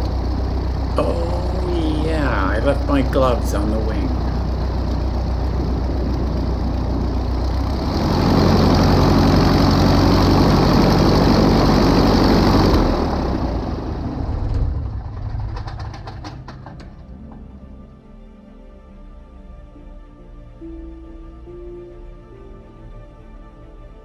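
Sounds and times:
propeller winding down clicks: 0.0s - 17.5s
aircraft piston engine idling: 0.0s - 17.6s.

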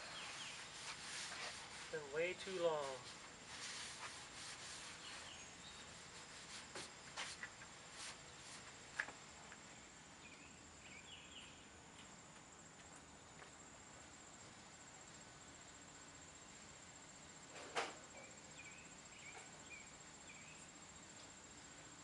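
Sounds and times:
crickets chirping: 2.8s - 22.0s
footstep scuffs: 6.6s - 9.2s.

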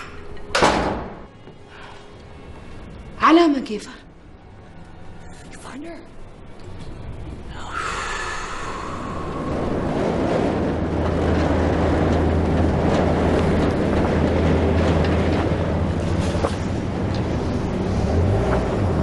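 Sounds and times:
motorized gate rumble: 6.2s - 19.0s.

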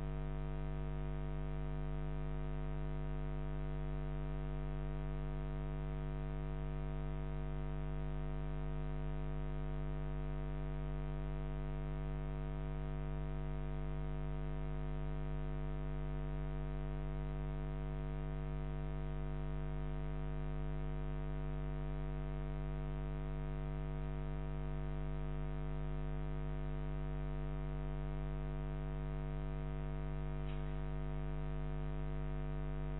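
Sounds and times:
electrical mains hum: 30.4s - 31.6s.

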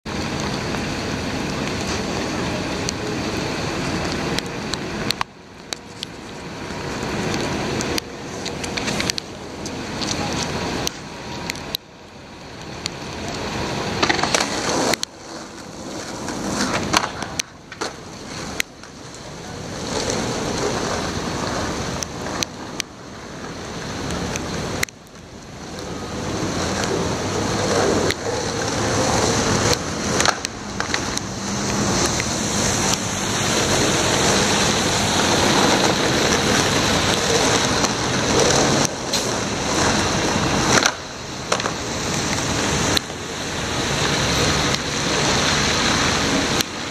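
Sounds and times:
skateboard wheels rolling on asphalt: 0.0s - 46.9s
skateboard clacks: 12.7s - 25.9s, 26.5s - 33.0s, 33.7s - 43.2s.

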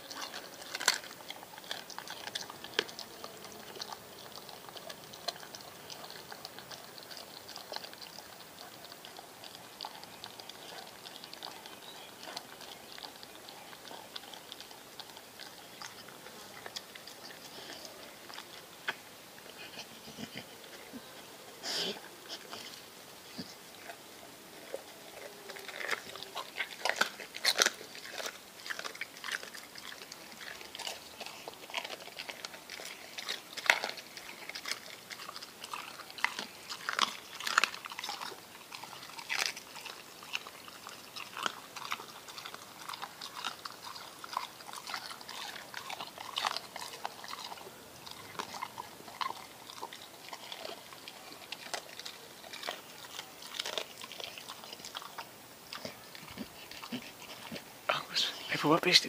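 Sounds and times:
dog chewing and licking fish: 0.0s - 59.0s.

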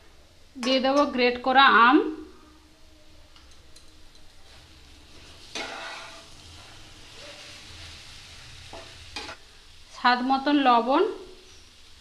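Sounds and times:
food sizzling in a frying pan: 0.9s - 12.0s
metal spatula scraping a pan: 4.4s - 9.4s.

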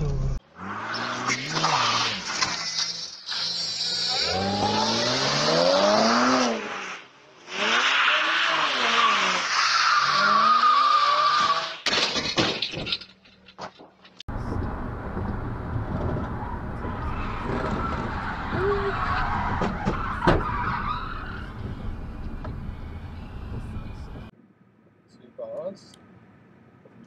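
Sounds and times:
car road and engine noise: 0.0s - 27.0s
tyres squealing: 16.3s - 23.8s.

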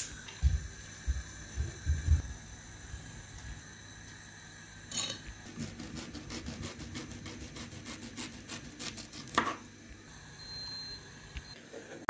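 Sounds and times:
knife sawing through ginger: 5.5s - 9.4s.

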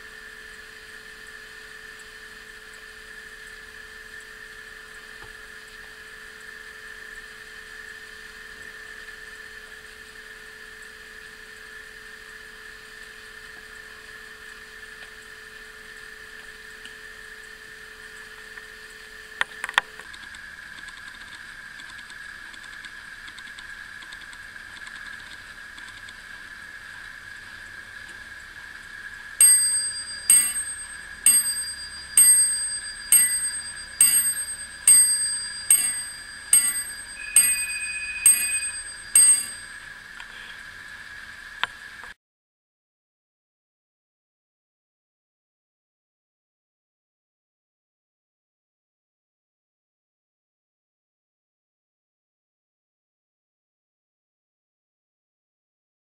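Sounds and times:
clock bell strikes: 29.4s - 39.8s.

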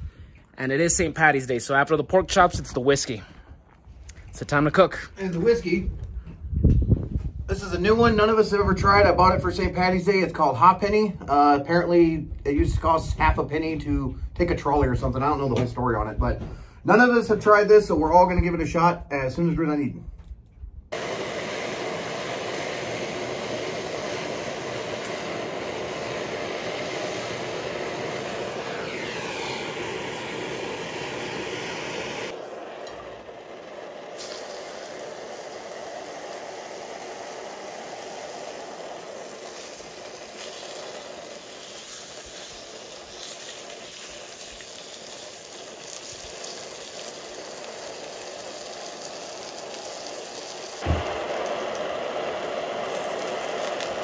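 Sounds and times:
pork chops sizzling: 21.0s - 54.0s.

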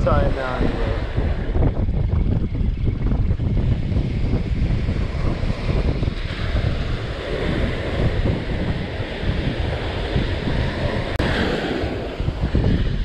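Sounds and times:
wind buffeting microphone: 0.0s - 13.0s
small waves breaking on beach: 5.0s - 12.9s.

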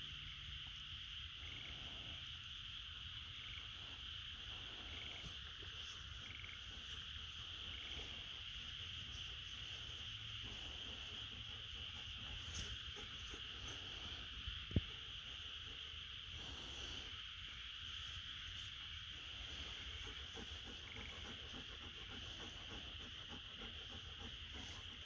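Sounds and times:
insect chorus buzzing: 0.0s - 25.0s.

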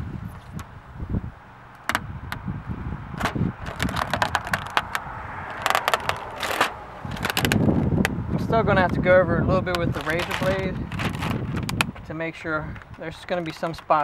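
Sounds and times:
plastic film peeling and crackling: 3.2s - 7.9s, 9.7s - 12.1s.

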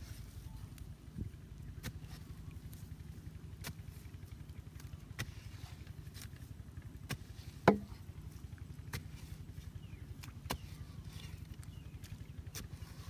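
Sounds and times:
steady low rumble: 0.0s - 13.0s
hoe chopping into damp soil: 5.1s - 6.3s, 7.0s - 8.1s, 10.2s - 11.3s.

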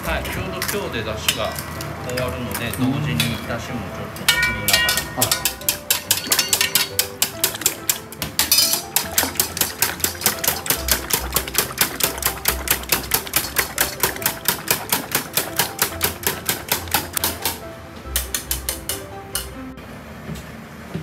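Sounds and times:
whisk clicking against metal bowl: 4.3s - 17.6s, 18.2s - 19.5s.

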